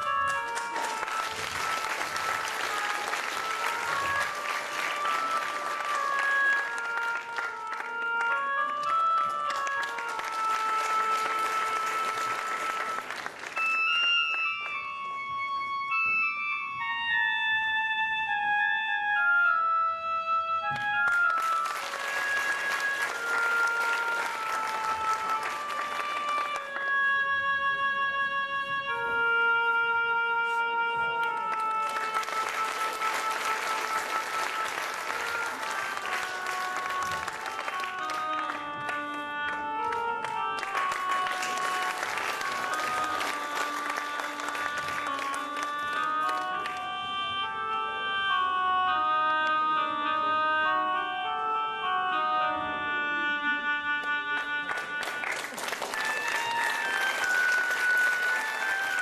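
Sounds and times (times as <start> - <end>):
audience applause: 0.0 - 14.4, 21.1 - 26.9, 31.2 - 46.8, 54.6 - 59.0
flute playing a melody: 0.0 - 59.0.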